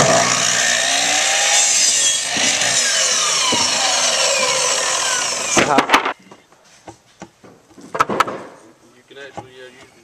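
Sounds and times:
miter saw winding down: 0.0s - 5.8s.

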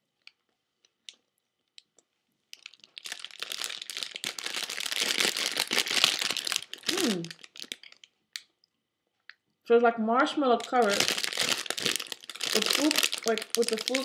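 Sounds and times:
wrapper crinkling: 2.5s - 8.2s, 10.5s - 14.0s.

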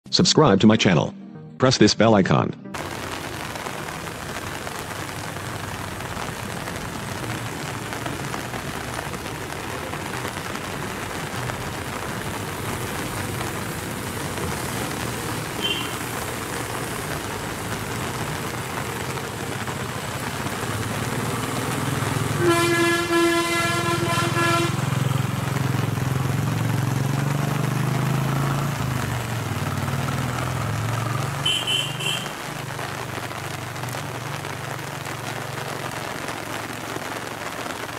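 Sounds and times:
rain hissing on road: 2.8s - 37.9s
bus engine: 6.1s - 36.5s
vehicle horn blast: 15.6s - 16.0s, 22.4s - 25.0s, 31.4s - 32.3s.

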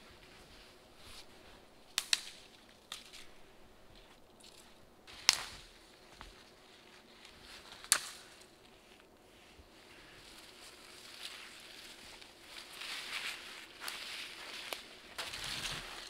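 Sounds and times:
branches cracking: 1.9s - 6.6s, 7.2s - 9.1s, 10.0s - 16.0s.

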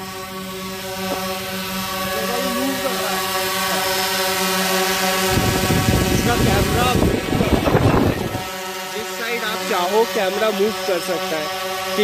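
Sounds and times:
drone propellers buzzing: 0.0s - 12.0s
wind rumble on microphone: 5.1s - 8.5s.

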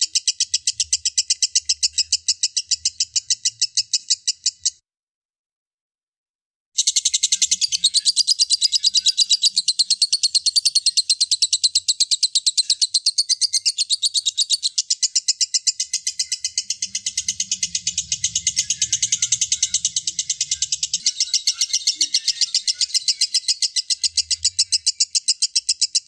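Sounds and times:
lovebird chattering: 6.8s - 26.0s.

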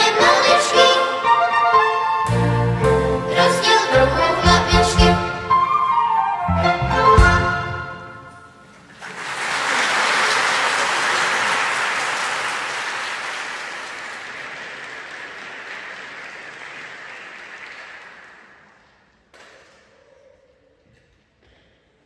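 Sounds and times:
audience applauding: 8.8s - 19.1s.

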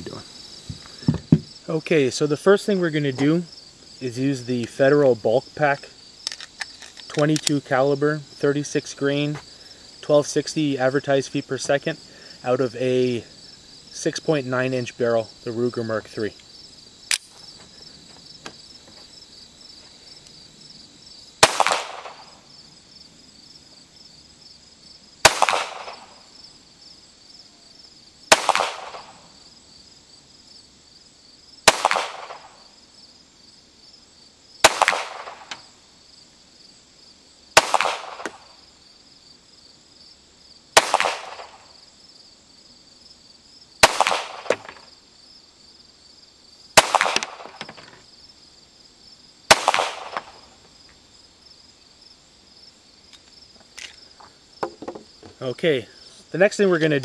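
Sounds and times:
crickets chirping: 0.0s - 57.0s
pistol shots: 21.4s - 22.4s, 25.2s - 26.2s, 28.3s - 29.2s, 31.6s - 32.6s, 34.6s - 35.6s, 37.6s - 38.5s, 40.8s - 41.6s, 43.8s - 44.7s, 46.8s - 47.7s, 49.5s - 50.5s.

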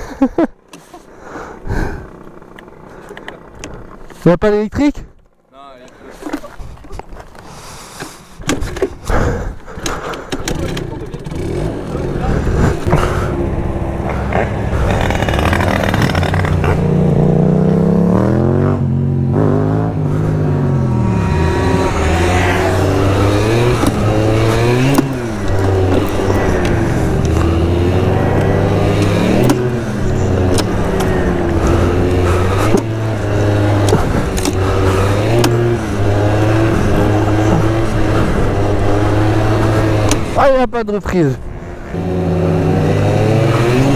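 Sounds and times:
scooter engine revving: 9.9s - 40.5s, 41.4s - 43.9s.

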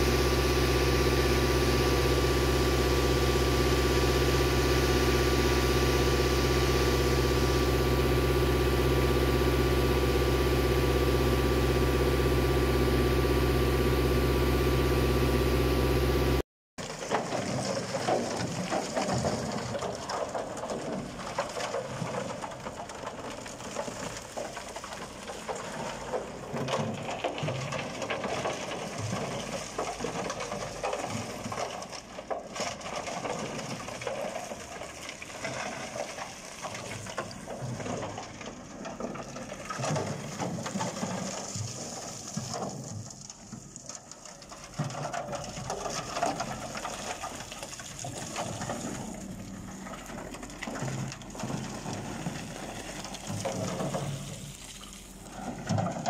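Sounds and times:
concrete chunks clattering down chute: 16.8s - 56.0s.

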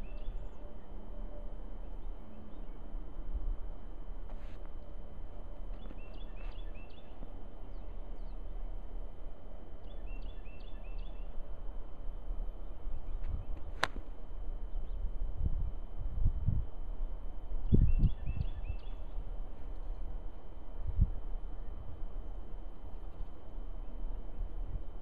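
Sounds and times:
golf club striking ball: 13.8s - 14.1s.

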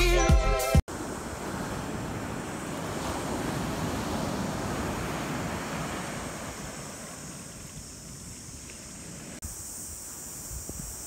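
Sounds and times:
surf washing up a beach: 0.9s - 9.4s
wind on the microphone: 0.9s - 11.0s.

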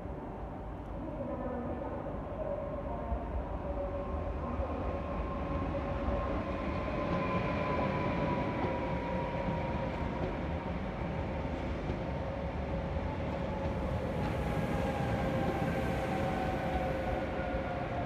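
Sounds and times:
electric train whine: 4.2s - 18.0s.

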